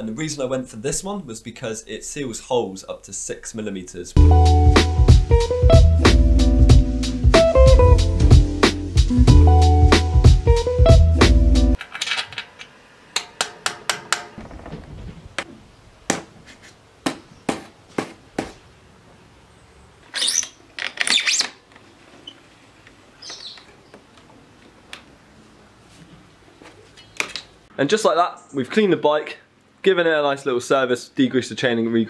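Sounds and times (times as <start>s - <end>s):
background music: 4.2s - 11.8s.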